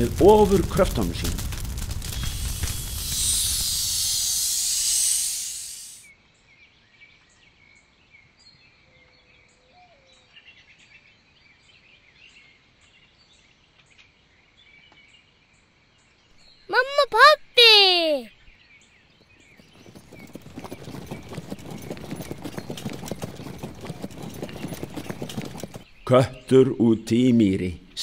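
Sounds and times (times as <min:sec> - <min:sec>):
birds chirping: 0:00.0 - 0:06.0, 0:19.2 - 0:28.0
small regular ticks: 0:00.9 - 0:06.0
insects chirping: 0:02.0 - 0:06.0, 0:19.6 - 0:25.8
rushing hiss of blown air: 0:02.1 - 0:06.0.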